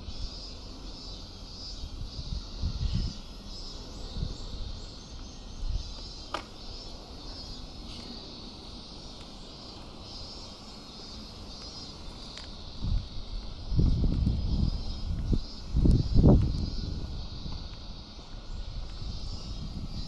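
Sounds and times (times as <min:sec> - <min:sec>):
wind rumbling on microphone: 0:00.0 - 0:10.4, 0:11.1 - 0:20.0
steady high-pitched hiss: 0:00.0 - 0:20.0.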